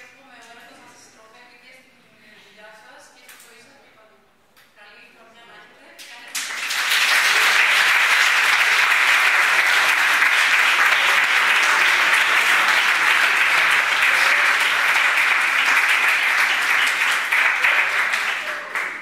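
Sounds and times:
students applauding: 6.3 - 19.0.

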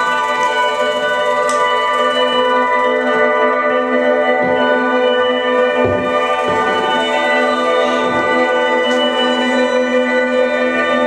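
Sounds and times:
drone of held pitches: 0.0 - 11.0
low thumps: 3.9 - 11.0.

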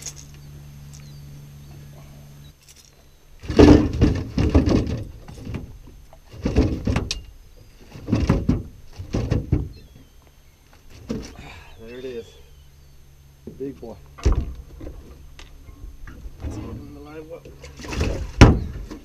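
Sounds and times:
steady low hum: 0.0 - 19.0
fish thrashing on boat deck: 3.4 - 10.0, 17.6 - 19.0.

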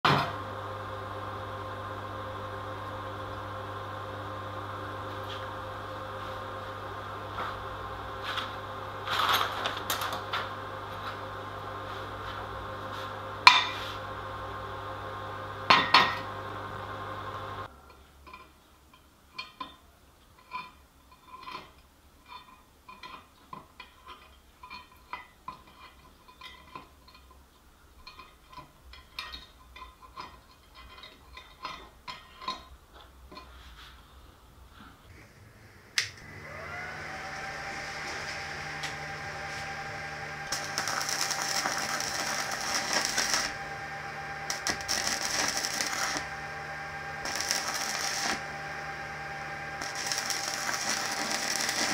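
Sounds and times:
steady hum: 0.1 - 17.7, 35.1 - 51.9.

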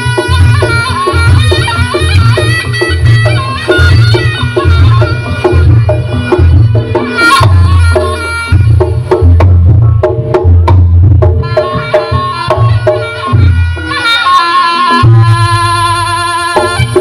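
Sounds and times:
held wavering melody note: 0.0 - 10.0, 11.4 - 17.0
drums beating driving rhythm: 0.0 - 17.0.

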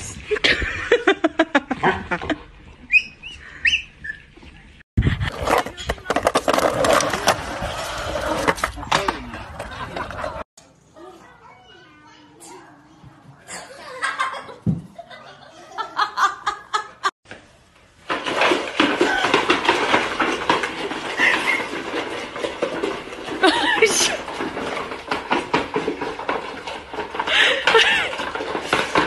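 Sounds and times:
people talking: 5.3 - 7.4, 8.7 - 14.4, 15.0 - 16.6
people laughing: 9.3 - 10.5, 13.5 - 17.1.

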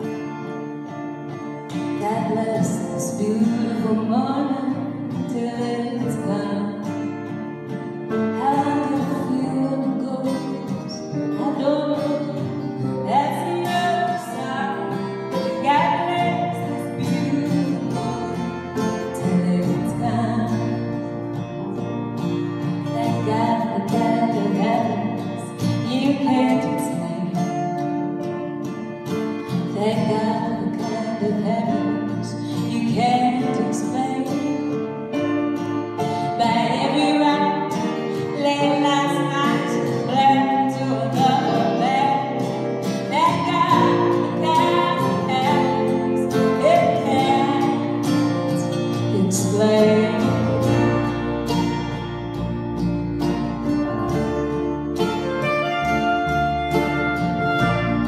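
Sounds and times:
woman singing lead: 0.0 - 21.9, 22.6 - 28.2, 29.1 - 52.4
live band playing: 6.0 - 31.0, 39.1 - 58.0.

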